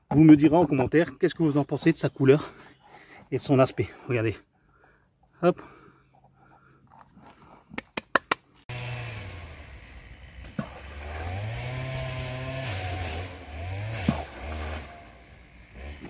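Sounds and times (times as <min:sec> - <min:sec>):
small engine revving: 0:08.7 - 0:16.0.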